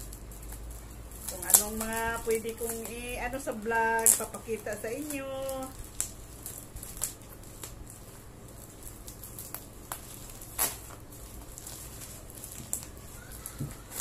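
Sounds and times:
scissors snipping: 0:00.0 - 0:07.8
plastic packaging crinkling: 0:00.0 - 0:14.0.

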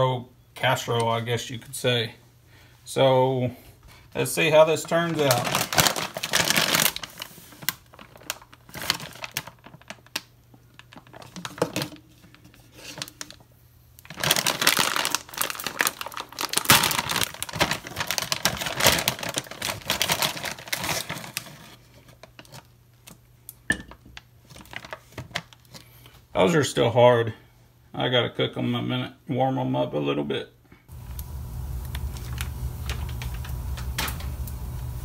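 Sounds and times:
plastic bag crinkling: 0:04.2 - 0:13.4, 0:14.0 - 0:22.7, 0:24.4 - 0:25.8, 0:30.9 - 0:35.0.

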